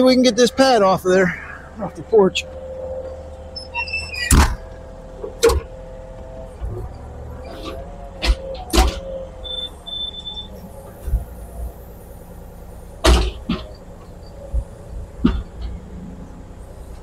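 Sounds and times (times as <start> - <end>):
diesel engine running: 0.0 - 17.0
excavator bucket knocks and clanks: 13.0 - 13.8, 14.6 - 15.8.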